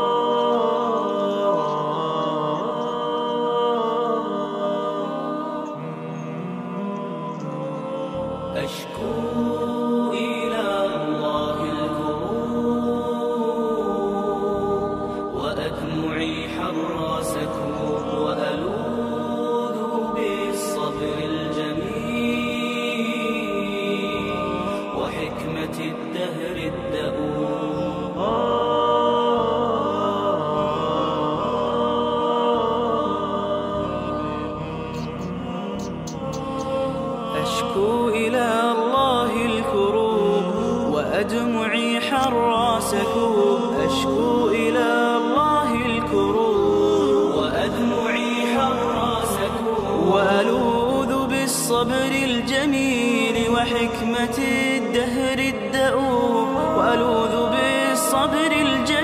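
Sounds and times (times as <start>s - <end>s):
voices chanting: 0.0s - 41.5s
person singing long notes: 0.0s - 59.0s.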